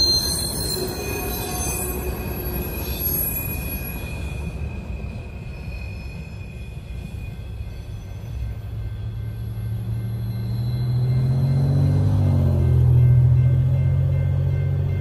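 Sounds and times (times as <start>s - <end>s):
crossing bell ringing: 0.0s - 15.0s
train cars rumbling on rails: 0.0s - 15.0s
car approaching: 9.6s - 14.8s.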